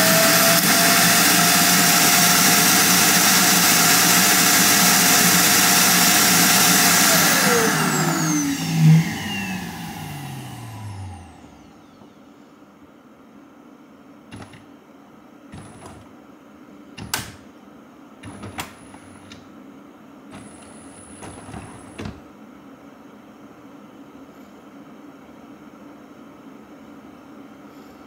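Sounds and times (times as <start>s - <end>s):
motor spinning down: 0.0s - 12.2s.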